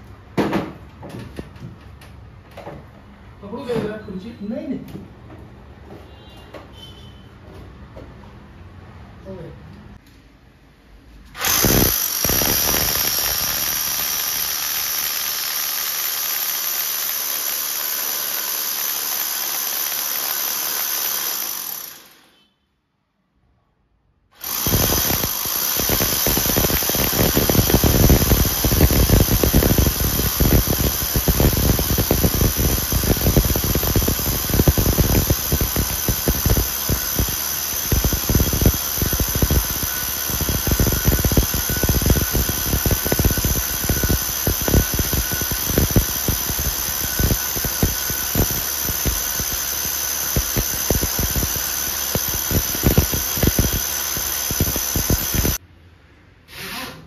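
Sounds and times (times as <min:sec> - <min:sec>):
electric drill whine: 0:11.4 - 0:22.4, 0:24.4 - 0:55.6
core bit rattling through wall: 0:24.4 - 0:55.6.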